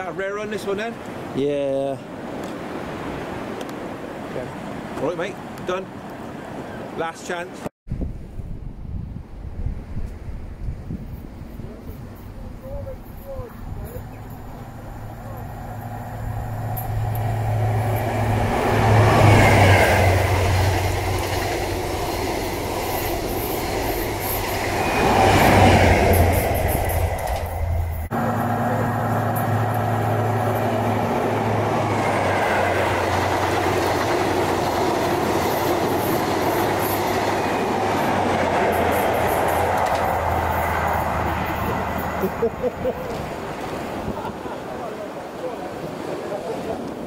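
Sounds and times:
rail and wheel noise: 0:00.0 - 0:06.9, 0:08.0 - 0:47.0
train engine drone: 0:11.2 - 0:43.6.

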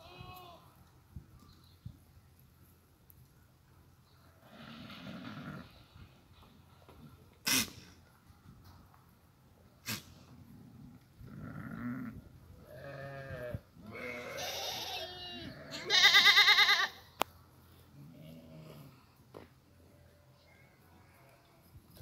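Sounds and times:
goats bleating: 0:12.7 - 0:17.0.

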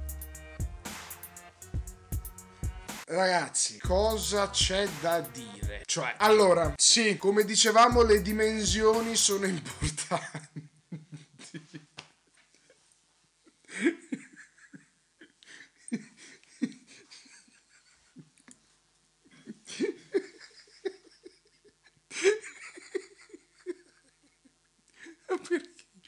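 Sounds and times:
man laughing: 0:04.0 - 0:05.8, 0:07.3 - 0:12.0, 0:13.5 - 0:18.4, 0:19.3 - 0:25.8
breathing: 0:15.4 - 0:16.4.

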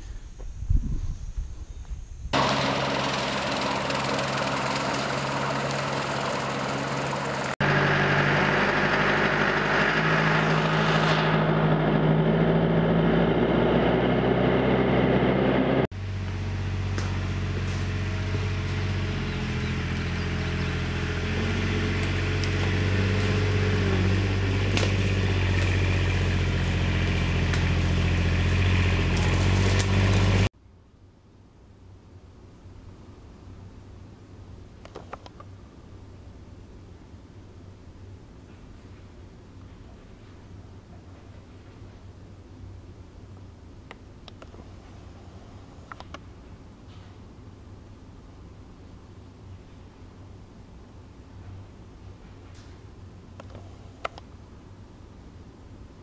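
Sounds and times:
tractor diesel engine running: 0:02.4 - 0:30.5
utility vehicle engine running: 0:02.4 - 0:30.5.

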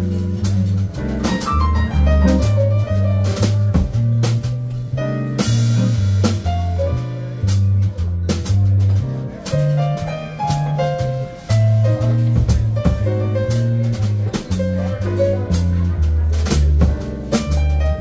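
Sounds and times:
drum kit keeping time: 0:00.0 - 0:18.0
electric bass line: 0:00.0 - 0:18.0
piano: 0:00.0 - 0:18.0.

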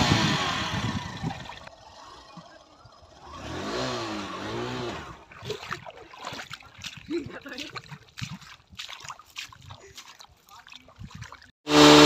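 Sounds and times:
motorcycle engine revving: 0:00.0 - 0:05.6, 0:11.7 - 0:12.0.

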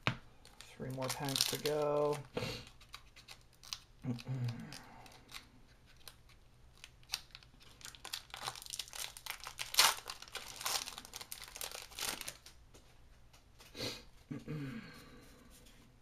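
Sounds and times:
plastic wrapper crinkling and tearing: 0:00.4 - 0:12.6.

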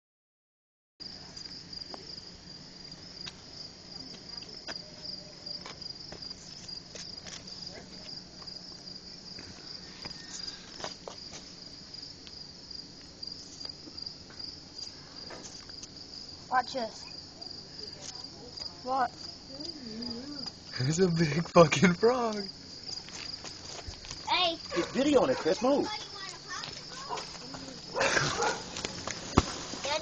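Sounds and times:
crickets chirping: 0:01.0 - 0:30.0.

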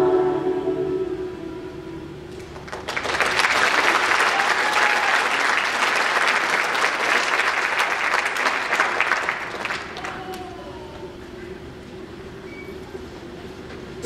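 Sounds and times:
audience applause: 0:02.4 - 0:11.1.

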